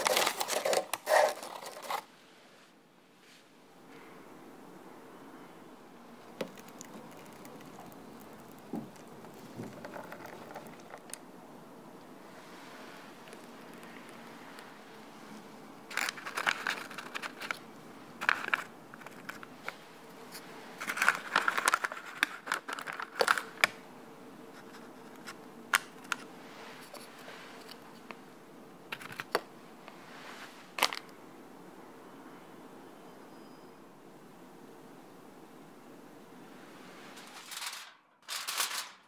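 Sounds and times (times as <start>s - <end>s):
baking paper crinkling: 0.0s - 2.1s, 6.4s - 11.2s, 15.9s - 23.8s, 37.2s - 39.0s
biscuits clicking as set down: 0.0s - 2.1s, 15.9s - 17.6s, 20.8s - 23.8s, 30.8s - 31.1s.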